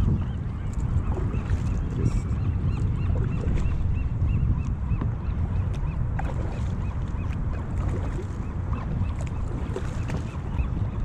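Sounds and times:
paddle splashing in water: 0.0 - 3.9, 5.7 - 10.6
wind rumble on microphone: 0.0 - 11.0.

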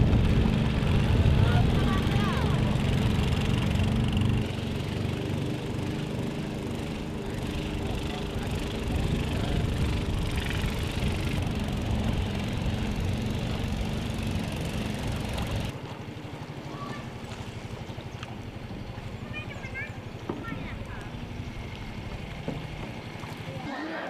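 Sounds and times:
fast low pulsing: 0.0 - 15.7
vehicle engine running: 0.0 - 23.7.

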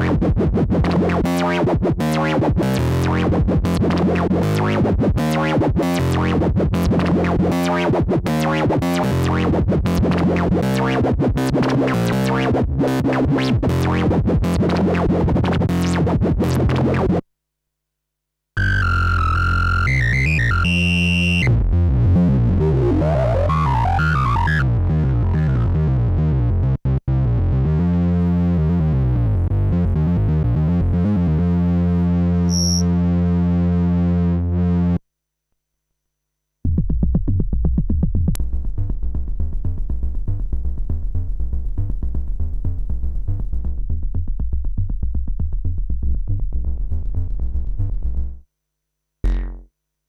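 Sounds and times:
synthesizer sequenced pattern: 0.0 - 12.5
synth bass line: 0.0 - 17.2, 18.6 - 35.0, 49.2 - 49.7
high gliding synth tone: 32.5 - 32.8.

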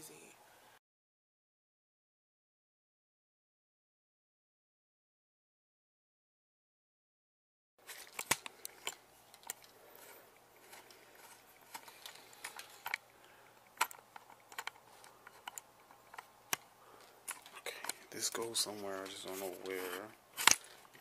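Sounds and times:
camera handling clicks and knocks: 7.9 - 9.8, 10.6 - 13.0, 13.6 - 18.1, 19.0 - 21.0.

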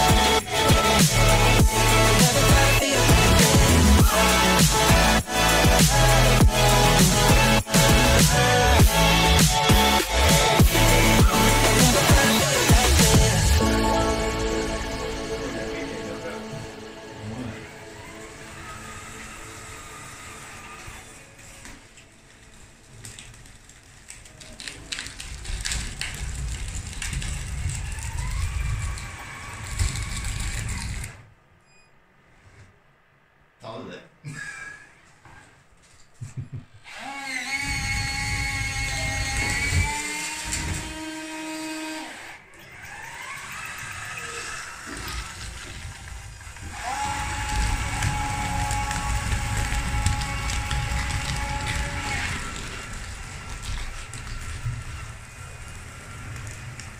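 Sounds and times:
electric drive whining: 0.0 - 22.9, 36.8 - 56.9
gravel crunching and rattling: 22.2 - 31.0, 45.0 - 56.9.

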